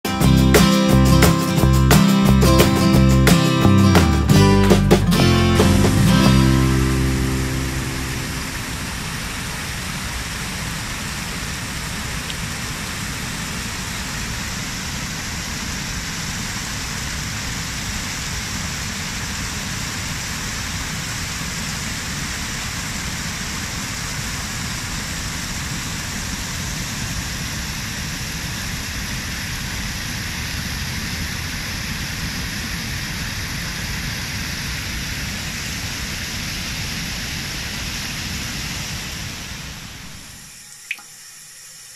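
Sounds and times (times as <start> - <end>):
water splashing over fountain steps: 6.6 - 26.3.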